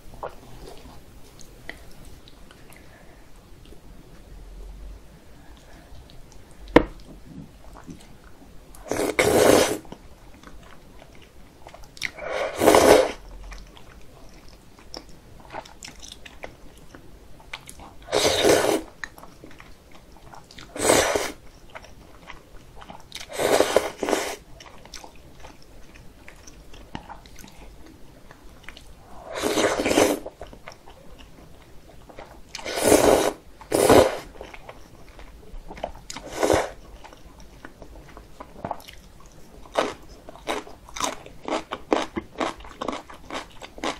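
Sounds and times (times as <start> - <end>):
quiet chewing: 0.2 - 4.7, 5.4 - 32.9, 33.5 - 43.9
loud noodle slurps: 8.8 - 9.8, 12.1 - 13.2, 18.1 - 18.9, 20.7 - 21.4, 23.3 - 24.4, 29.2 - 30.3, 32.6 - 34.3, 36.2 - 36.8.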